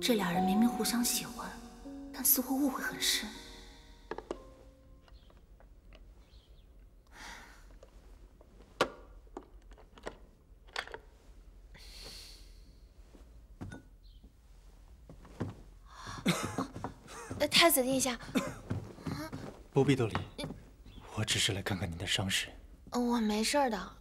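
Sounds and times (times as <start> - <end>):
soft rustling: 7.6 - 9.5, 12.9 - 21.1.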